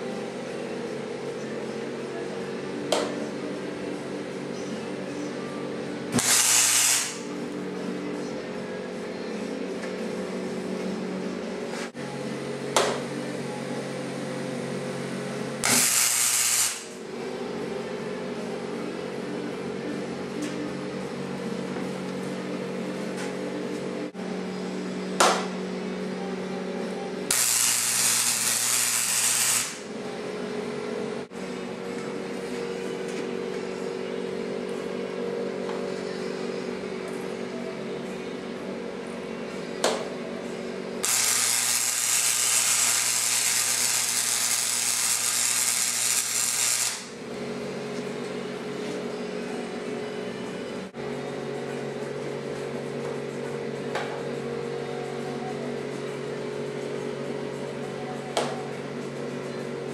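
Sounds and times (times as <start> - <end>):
constant background hum: 0.0 - 59.9
welder arc hissing: 6.2 - 7.4, 15.6 - 17.0, 27.3 - 29.9, 41.0 - 47.2.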